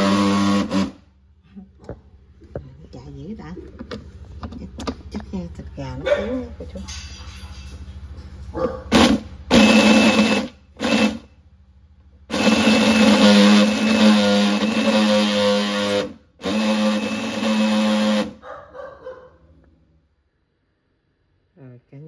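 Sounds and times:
electric blender pureeing: 0.0s - 1.0s, 8.9s - 11.2s, 12.3s - 18.4s.

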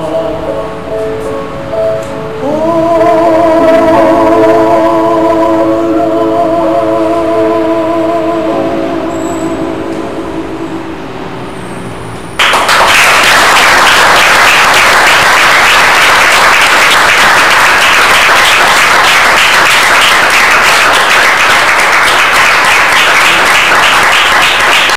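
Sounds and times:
sustained sung note and piano: 0.0s - 12.0s
audience applause: 12.4s - 24.9s.

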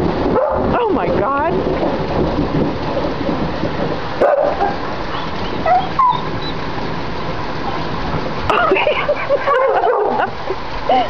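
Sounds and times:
heavy wind-blown rain: 0.0s - 11.0s
dog crying: 4.5s - 6.6s.

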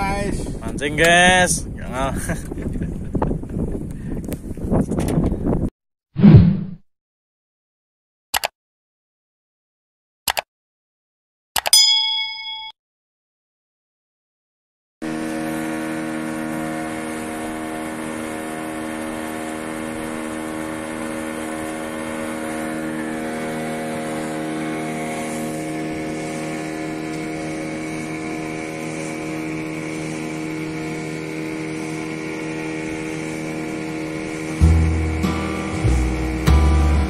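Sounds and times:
wind: 0.0s - 5.7s, 11.6s - 12.7s, 15.0s - 37.0s
boat engine humming: 15.0s - 37.0s.

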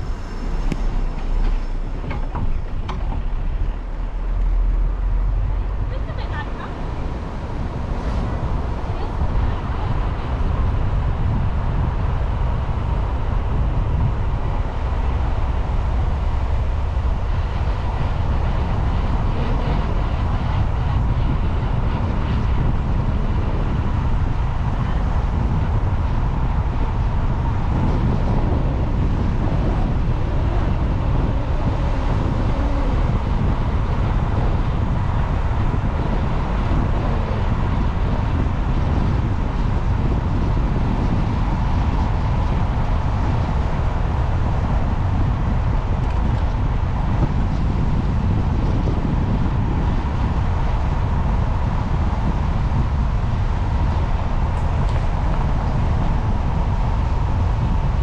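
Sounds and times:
car driving slowly: 0.0s - 58.0s.

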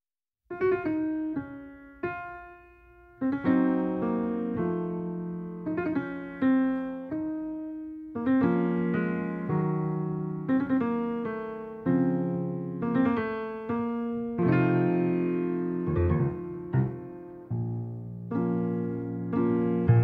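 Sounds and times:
solo piano piece: 0.5s - 20.0s.

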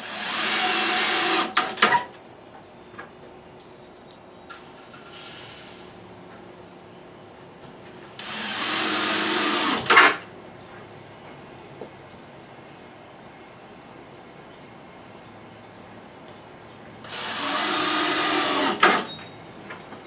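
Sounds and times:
cordless drill driving screws: 0.0s - 2.0s, 8.2s - 10.2s, 17.0s - 19.1s.

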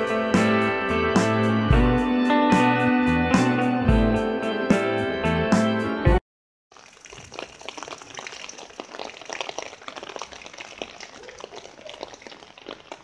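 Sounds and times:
heavy rain on standing water: 6.7s - 13.0s.

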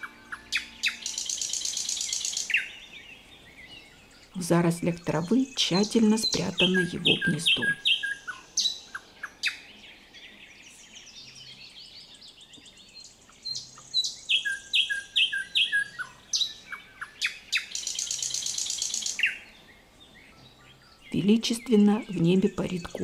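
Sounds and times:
nightingale singing: 0.0s - 23.0s.

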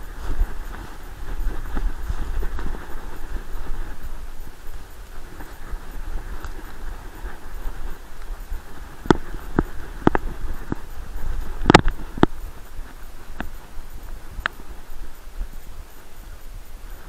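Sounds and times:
low rumble of body movement: 0.0s - 17.0s
rustle of dry leaves: 0.0s - 17.0s
wind on microphone: 0.0s - 17.0s
sharp clicks and knocks: 9.0s - 10.9s, 11.6s - 12.4s.

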